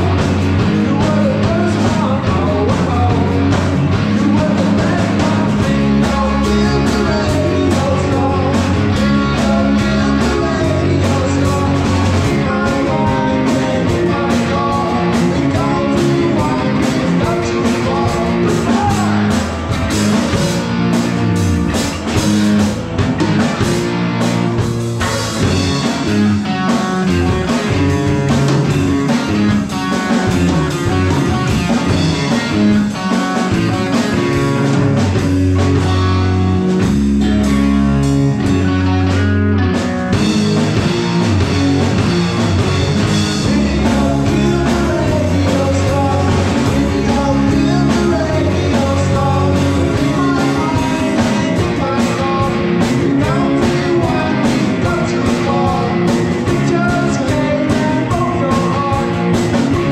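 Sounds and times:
person singing: 0.0s - 20.7s, 43.1s - 59.9s
bass guitar: 0.0s - 59.9s
drum kit: 0.0s - 59.9s
electric guitars: 0.0s - 59.9s.

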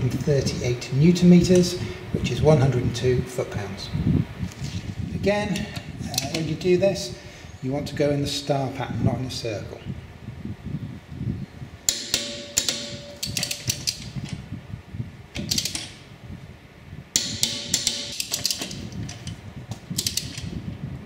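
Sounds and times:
low background hum: 0.0s - 21.0s
metal ratchet clicks: 11.9s - 14.4s, 15.3s - 16.0s, 17.1s - 20.6s.

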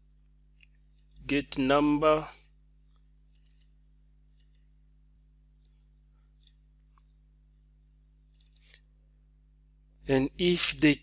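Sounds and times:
faint steady hum: 0.0s - 11.0s
computer mouse clicking: 0.6s - 1.2s, 3.3s - 3.8s, 4.4s - 4.7s, 6.4s - 6.6s, 8.3s - 8.8s.

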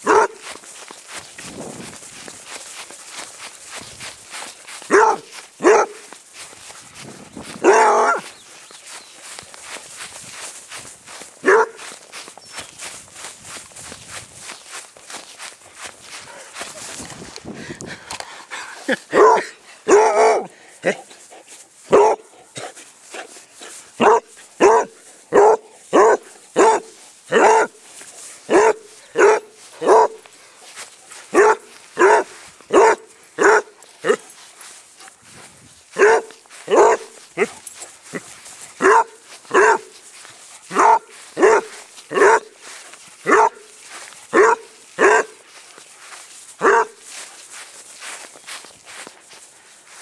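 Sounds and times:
dog barking: 0.0s - 0.5s, 4.9s - 6.1s, 7.6s - 8.3s, 11.4s - 12.0s, 19.1s - 21.0s, 21.9s - 22.8s, 24.0s - 27.8s, 28.5s - 30.2s, 31.3s - 34.2s, 36.0s - 40.0s, 40.7s - 42.6s, 43.2s - 45.4s, 46.6s - 47.0s.

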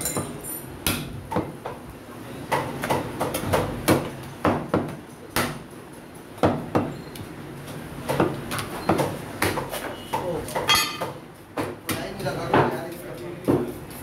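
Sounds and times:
cleaver chopping meat on wood: 0.2s - 1.8s, 2.5s - 5.7s, 6.4s - 7.0s, 8.0s - 12.8s.

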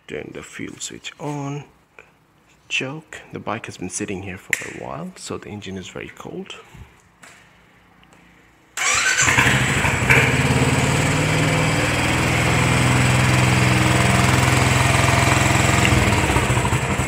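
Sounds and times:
motorcycle engine starting and idling: 8.8s - 17.0s.

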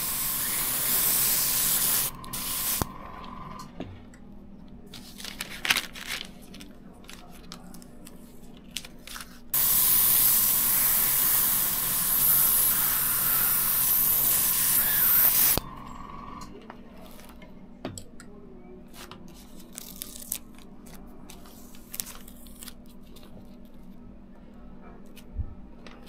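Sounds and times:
airbrush spraying paint: 0.0s - 2.9s, 9.6s - 15.6s.

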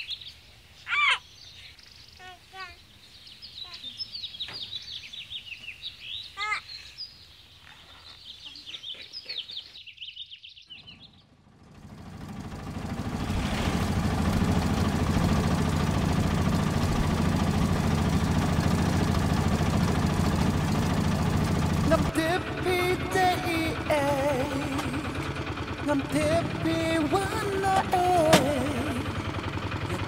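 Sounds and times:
small birds chirping: 0.0s - 11.6s
auto-rickshaw engine running: 10.8s - 30.0s.

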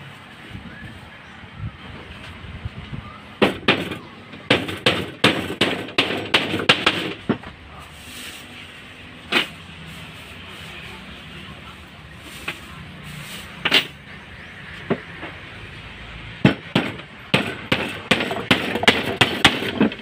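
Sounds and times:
hammer striking nails into wood: 3.4s - 7.4s, 16.4s - 20.0s.

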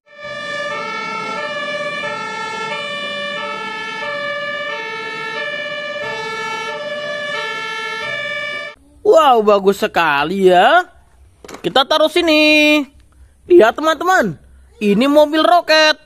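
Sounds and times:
two-tone fire truck siren: 0.0s - 8.8s.

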